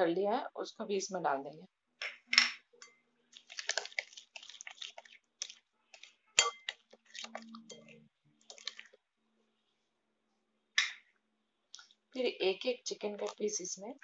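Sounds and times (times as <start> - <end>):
spoon stirring thick marinade: 2.7 - 9.1, 13.0 - 14.0
spoon clinking against glass: 6.4 - 6.8.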